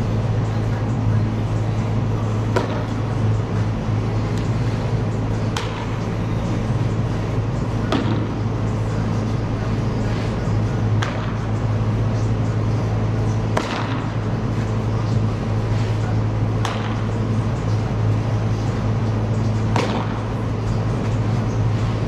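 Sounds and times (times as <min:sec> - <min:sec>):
steady low hum: 0:00.0 - 0:22.0
baseball smacking into glove: 0:02.5 - 0:02.9, 0:16.6 - 0:17.0, 0:19.7 - 0:20.2.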